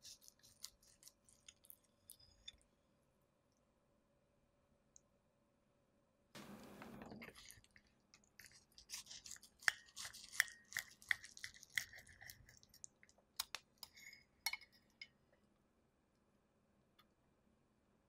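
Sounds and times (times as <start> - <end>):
knife cutting crispy food: 0.0 - 1.7, 8.4 - 12.5.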